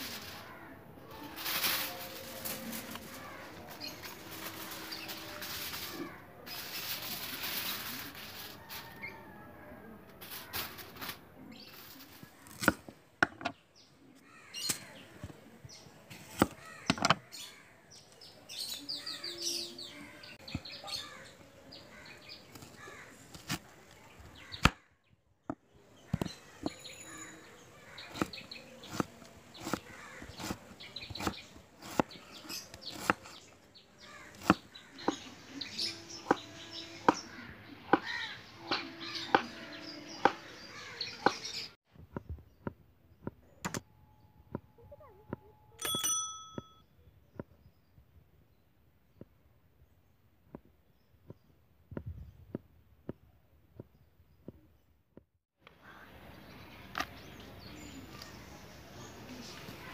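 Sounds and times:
birds chirping: 0:10.3 - 0:23.4, 0:24.0 - 0:52.6
knife chopping on wooden board: 0:28.1 - 0:33.4, 0:34.3 - 0:35.2, 0:36.1 - 0:37.3.

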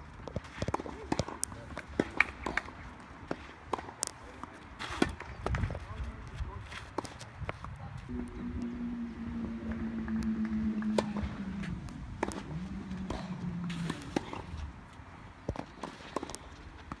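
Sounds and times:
low drone: 0:08.1 - 0:15.2.

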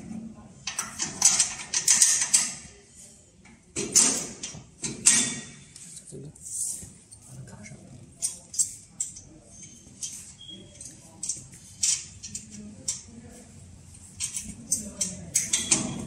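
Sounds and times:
metal parts clicking and clinking: 0:00.6 - 0:02.6, 0:08.2 - 0:13.1, 0:14.2 - 0:16.0.

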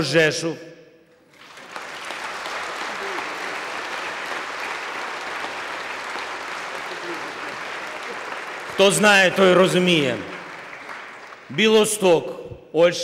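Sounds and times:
audience applauding: 0:01.3 - 0:11.9.

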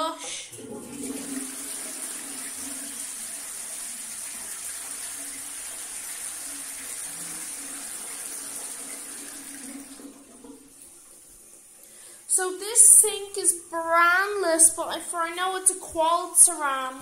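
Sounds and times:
toilet flushing: 0:00.2 - 0:13.8.

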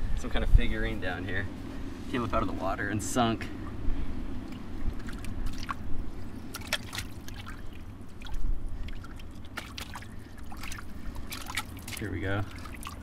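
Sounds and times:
small splashes and drips: 0:04.4 - 0:13.0
hand sloshing through muddy water: 0:04.5 - 0:13.0.

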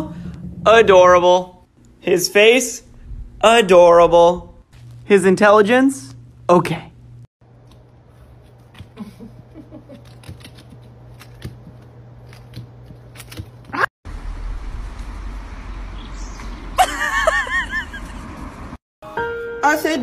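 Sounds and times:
low hum: 0:00.0 - 0:08.4, 0:14.1 - 0:18.8
wind rumbling on microphone: 0:02.9 - 0:04.6.

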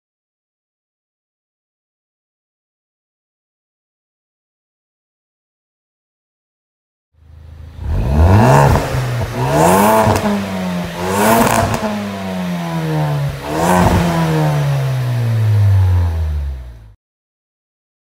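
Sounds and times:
car engine revving: 0:07.2 - 0:17.0.

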